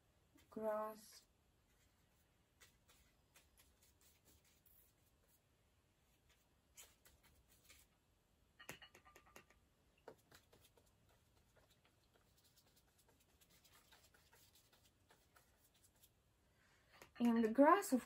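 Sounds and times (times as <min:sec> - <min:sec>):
paintbrush scratching on paper: 0:01.2 - 0:05.4, 0:06.1 - 0:07.9, 0:10.0 - 0:16.2.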